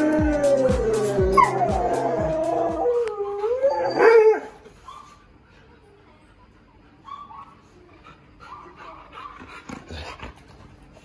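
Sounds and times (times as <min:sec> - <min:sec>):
music with steady beat: 0:00.0 - 0:03.0
dog howling: 0:00.0 - 0:04.6.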